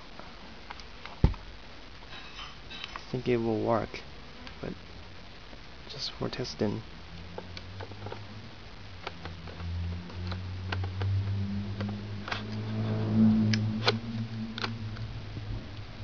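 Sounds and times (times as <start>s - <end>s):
low rubbing rumble: 7.1s - 16.0s.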